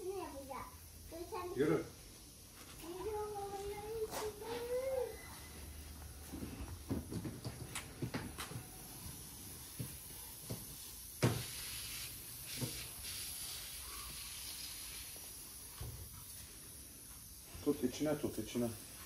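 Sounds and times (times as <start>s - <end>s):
water spraying from hose nozzle: 9.2s - 19.0s.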